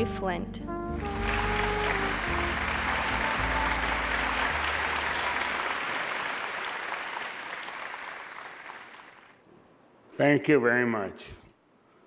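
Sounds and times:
low music notes: 0.0s - 6.0s
audience applauding: 1.0s - 9.4s.

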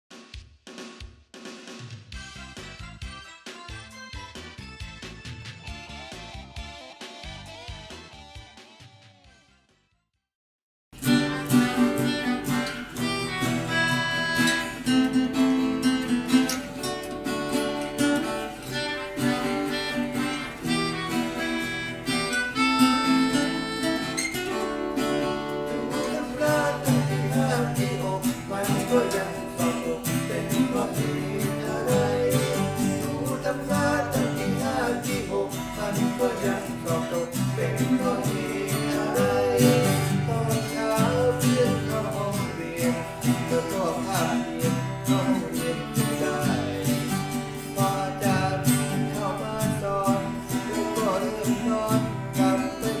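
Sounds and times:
melodica melody: 2.2s - 9.5s, 11.0s - 44.4s
acoustic bass line: 11.0s - 53.0s
acoustic guitars strumming: 11.0s - 53.0s
voices singing: 25.7s - 53.0s.

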